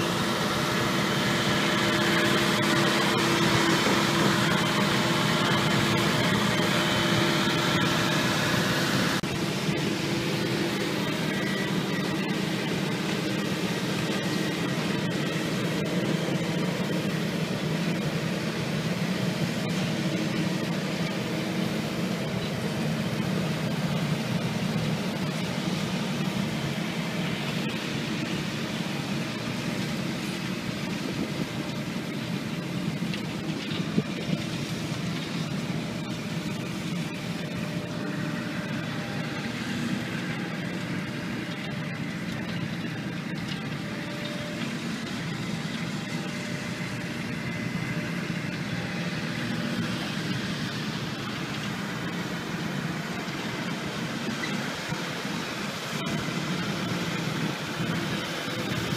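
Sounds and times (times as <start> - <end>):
excavator diesel engine: 0.0 - 58.9
tractor dragging implement over soil: 0.0 - 58.9.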